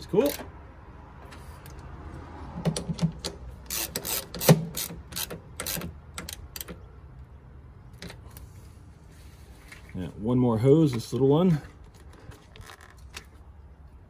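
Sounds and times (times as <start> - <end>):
socket ratchet clicking: 2.8 - 6.8.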